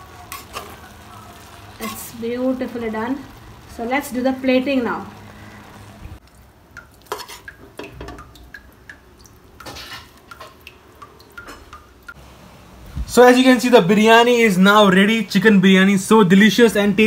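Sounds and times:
spoon scraping metal pot: 7.1 - 7.6, 9.6 - 10.1.

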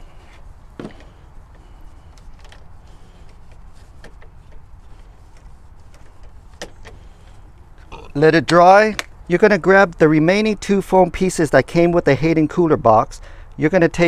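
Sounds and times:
cloth rag rubbing plastic: 0.0 - 7.4
low steady hum: 0.0 - 10.8.

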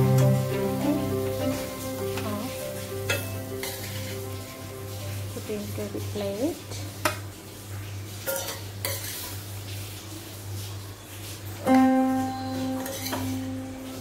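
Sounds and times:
guitar music: 0.0 - 5.9, 11.7 - 14.0.

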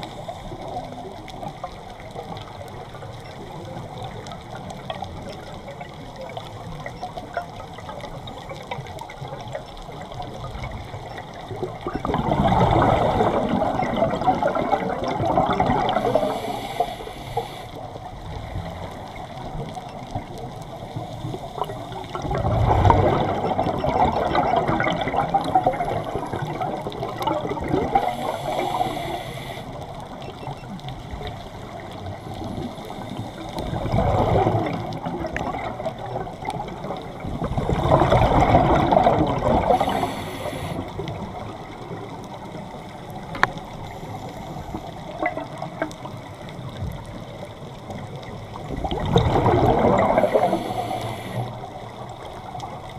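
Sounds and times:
regulator exhaled bubbles: 11.9 - 17.6, 37.3 - 41.2, 48.8 - 51.6.

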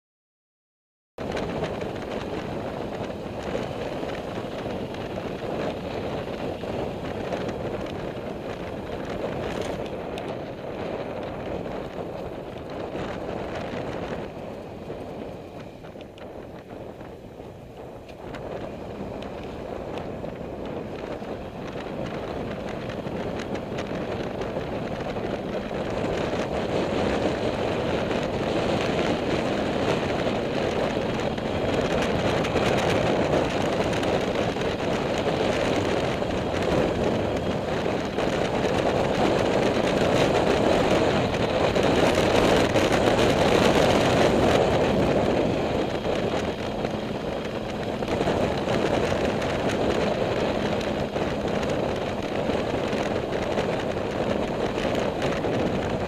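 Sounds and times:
motorcycle engine running: 1.2 - 56.0
wind rushing over microphone: 1.2 - 56.0.

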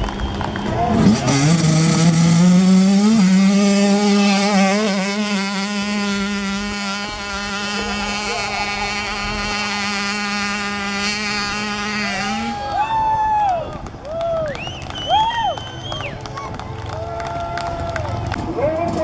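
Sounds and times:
motorcycle engine at high revs: 1.0 - 12.6.

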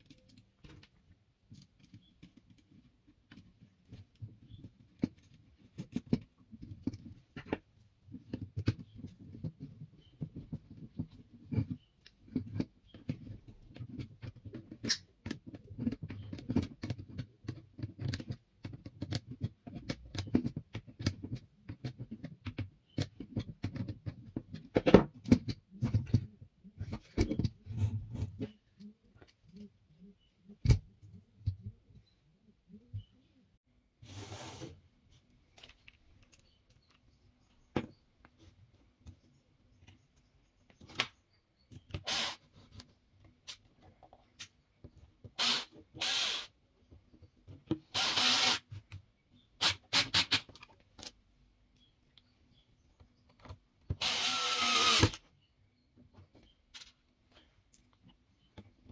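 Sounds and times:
clicks and taps of small parts: 0.0 - 27.5.

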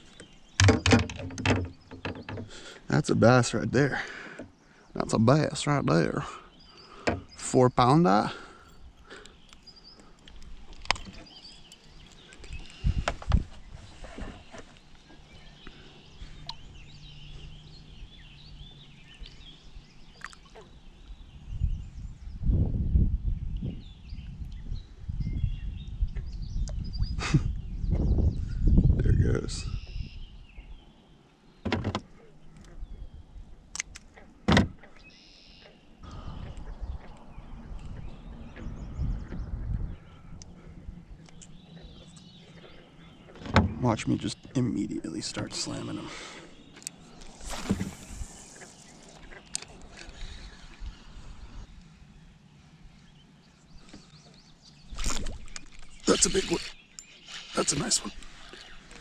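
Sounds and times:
birds chirping: 0.0 - 59.0
sharp knocks and clicks: 0.6 - 2.6
low rumbling noise: 36.0 - 41.7
high chirping: 54.8 - 59.0.

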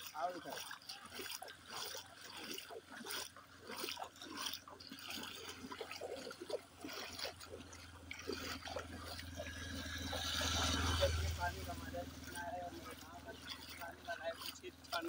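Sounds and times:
footsteps splashing in water: 0.0 - 15.0
motorcycle engine hum: 4.6 - 15.0.

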